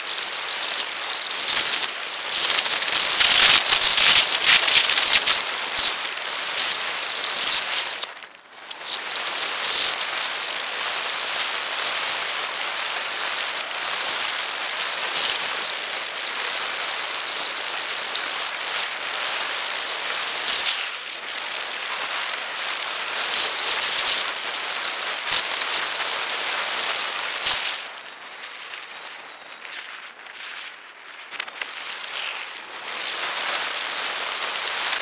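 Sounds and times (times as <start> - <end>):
camera rolling noise: 0.0 - 35.0
wind hiss on microphone: 0.0 - 35.0
crackles and knocks: 23.2 - 34.2.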